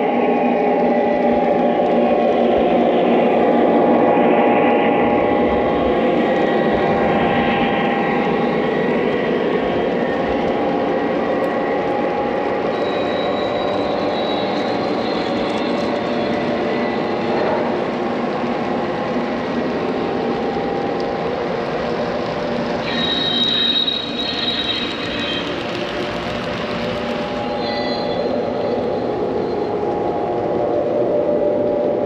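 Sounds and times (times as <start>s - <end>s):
toy train wheels clattering: 12.8s - 29.8s.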